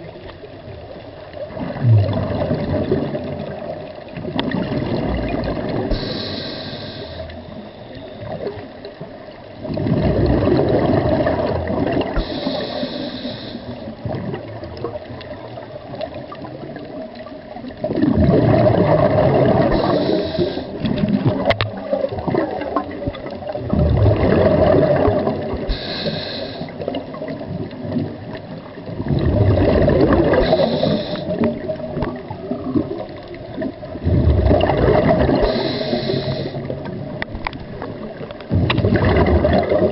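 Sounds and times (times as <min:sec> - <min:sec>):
exhaled bubbles gurgling: 0:00.0 - 0:39.9
diver breathing in hiss: 0:05.9 - 0:07.9, 0:12.2 - 0:13.9, 0:19.6 - 0:20.9, 0:25.6 - 0:27.0, 0:30.2 - 0:31.6, 0:35.3 - 0:36.8.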